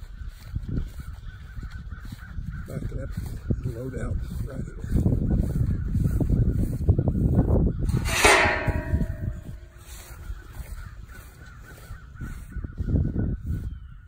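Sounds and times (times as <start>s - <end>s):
wind buffeting microphone: 0.0s - 14.0s
loud harsh sound: 7.9s - 9.8s.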